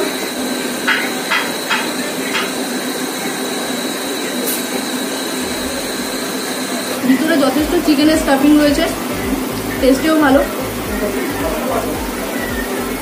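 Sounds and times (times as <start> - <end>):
steady rushing noise: 0.0 - 13.0
low hum: 4.3 - 13.0.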